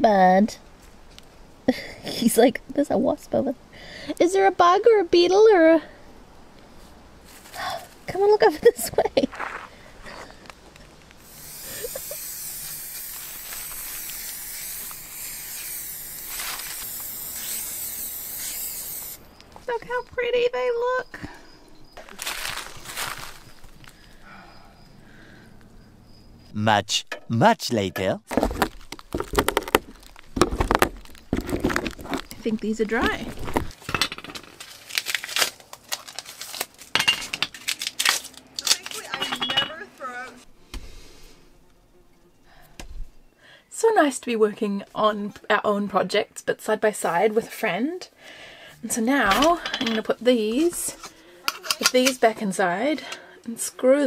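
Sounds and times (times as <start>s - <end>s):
masking tape peeling: 11.1s - 19.3s, 34.5s - 39.1s
spray can hissing: 11.2s - 19.2s
metal rings clinking on wood: 38.9s - 39.8s.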